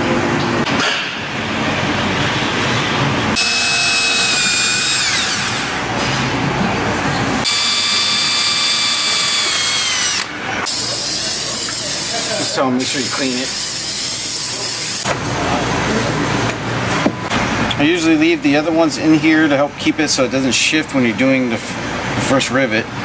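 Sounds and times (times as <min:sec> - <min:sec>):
cordless drill whining: 0:03.4 - 0:05.8, 0:07.4 - 0:12.0.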